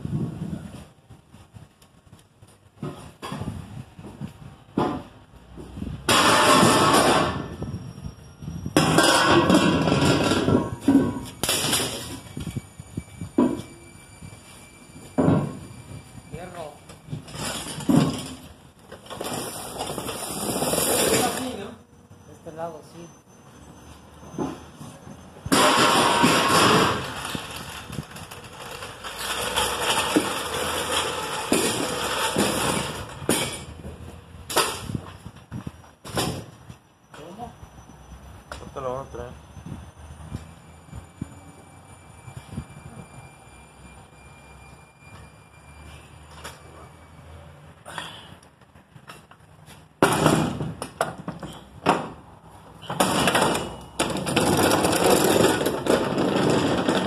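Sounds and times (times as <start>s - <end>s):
metal knocks and clanks: 2.8s - 7.7s, 8.8s - 12.4s, 15.1s - 16.0s, 17.1s - 20.0s, 25.4s - 27.4s, 52.8s - 57.0s
metal clanks: 8.8s - 12.3s
floor jack wheels rattling: 25.5s - 33.8s, 52.9s - 57.0s.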